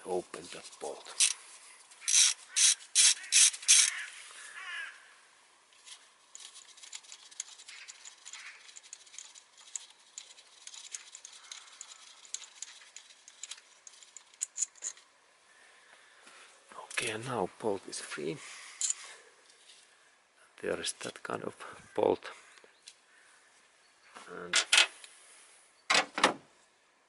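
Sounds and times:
socket wrench clicking: 0:02.0 - 0:04.0
light scraping: 0:05.7 - 0:15.1.

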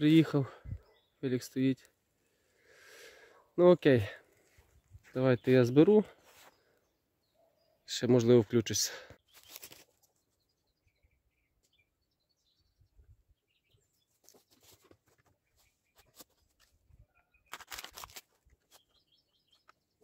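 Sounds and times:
faint bird chirps: 0:00.6 - 0:01.4, 0:04.6 - 0:08.1
plastic bottle clicks and rustles: 0:17.5 - 0:18.8.

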